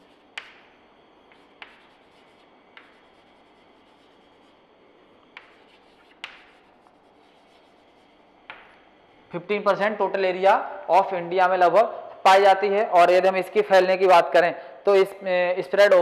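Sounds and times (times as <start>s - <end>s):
chalk scratching on a chalkboard: 0.0s - 0.6s, 1.3s - 4.6s, 5.4s - 8.3s
chalk tapping on a board: 0.0s - 0.7s, 1.3s - 4.5s, 5.3s - 8.7s.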